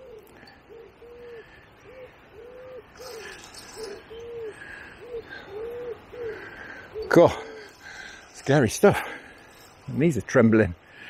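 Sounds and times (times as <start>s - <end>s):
bird hooting: 0.0s - 7.9s
faint bird chirps: 0.0s - 8.5s.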